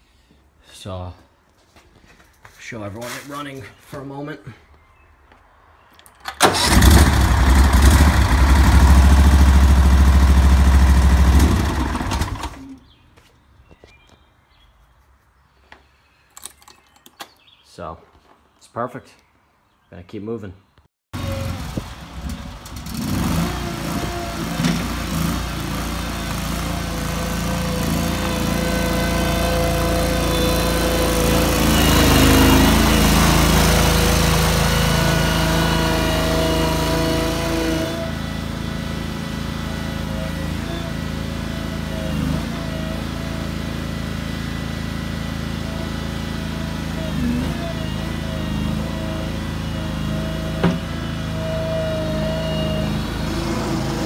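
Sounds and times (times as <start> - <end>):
engine running: 6.4 - 12.8, 21.2 - 54.0.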